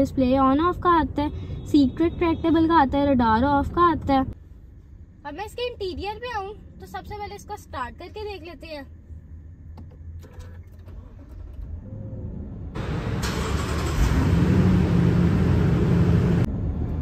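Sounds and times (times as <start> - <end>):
car engine starting and running: 9.3 - 17.0.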